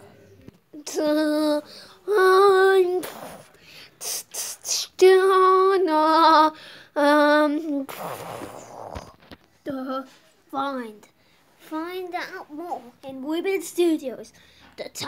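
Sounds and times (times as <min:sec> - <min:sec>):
child singing wordless tune: 0:00.7 - 0:07.9, 0:09.6 - 0:15.0.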